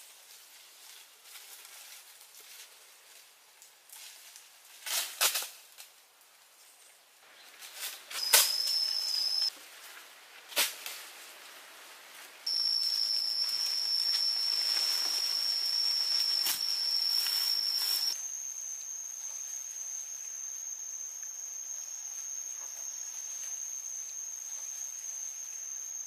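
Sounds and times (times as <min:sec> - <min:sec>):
cicadas droning: 0:07.1 - 0:09.6, 0:12.4 - 0:26.0.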